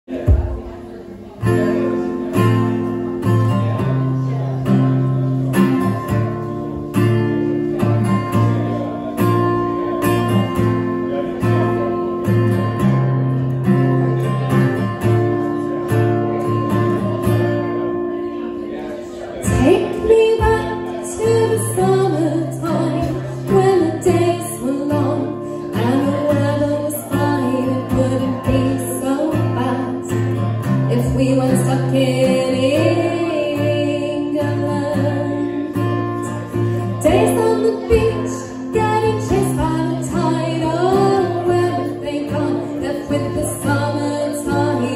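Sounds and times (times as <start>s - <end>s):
acoustic guitar strumming: 0.1s - 44.9s
woman singing: 19.4s - 44.9s
ukulele: 22.5s - 26.2s.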